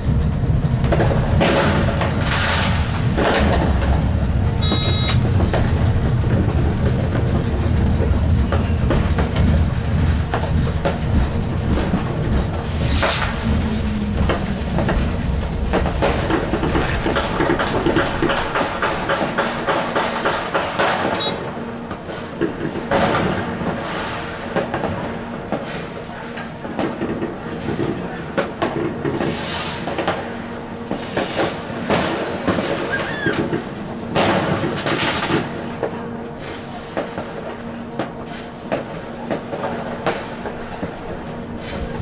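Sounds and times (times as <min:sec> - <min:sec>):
fireworks cracking and banging: 0:00.0 - 0:42.0
train wheel and rail rumble: 0:00.0 - 0:42.0
brief high tone: 0:04.6 - 0:05.2.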